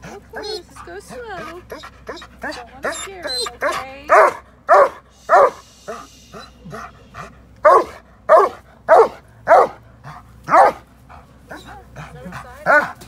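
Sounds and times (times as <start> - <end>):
dog yipping: 0.3 - 0.7, 1.7 - 5.6, 6.4 - 9.8, 10.5 - 10.8
dog barking: 2.9 - 5.6, 7.6 - 9.8, 10.5 - 10.8.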